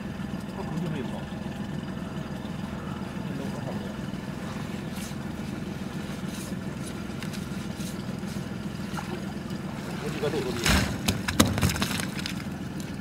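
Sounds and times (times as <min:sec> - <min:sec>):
boat engine idling: 0:00.0 - 0:13.0
water splashes and drips: 0:04.3 - 0:13.0.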